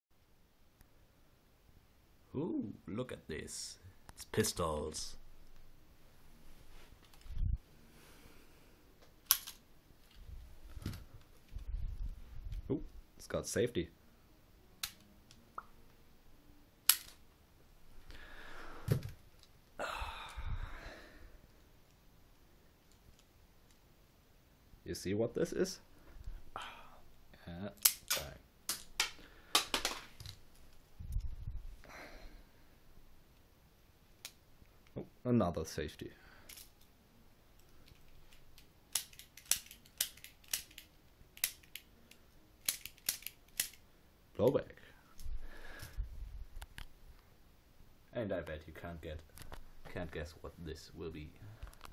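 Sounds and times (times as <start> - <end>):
plastic clicks and snaps: 9.0 - 10.2, 14.8 - 15.8, 27.7 - 30.4, 37.6 - 43.8.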